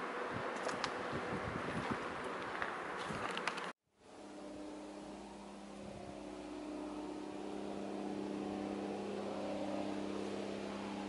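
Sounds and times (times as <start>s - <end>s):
train approaching hum: 4.0s - 11.0s.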